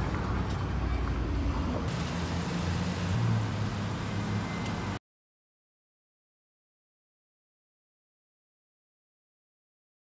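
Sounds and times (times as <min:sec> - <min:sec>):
car road and engine rumble: 0:00.0 - 0:05.0.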